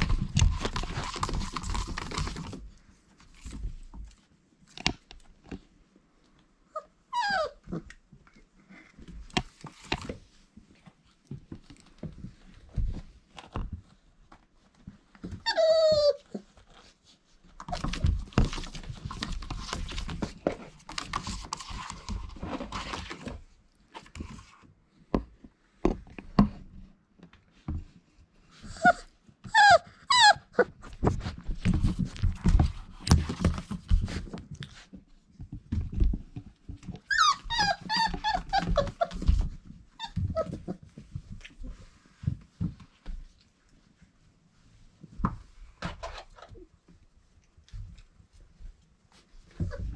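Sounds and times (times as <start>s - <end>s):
puppies scuffling on bedding: 0.0s - 4.6s, 8.7s - 24.7s, 30.6s - 49.9s
puppies whining and yipping: 6.7s - 7.8s, 15.3s - 16.6s, 28.7s - 30.8s, 37.0s - 40.9s, 49.5s - 49.9s.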